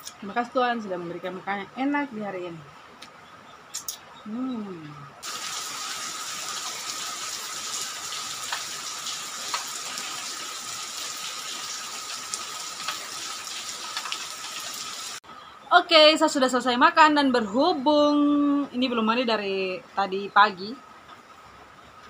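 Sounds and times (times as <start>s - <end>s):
rain on corrugated roof: 5.2s - 15.2s.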